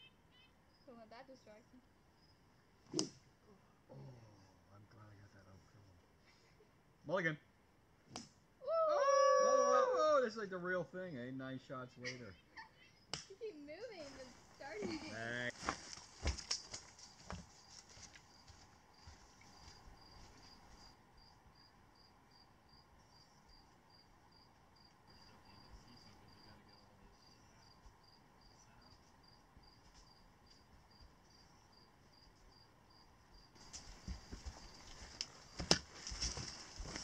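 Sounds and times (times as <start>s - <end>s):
insect chirping: 0.0s - 37.0s
footsteps on rocky trail: 14.8s - 20.9s, 33.6s - 37.0s
trekking poles clicking: 15.8s - 17.4s.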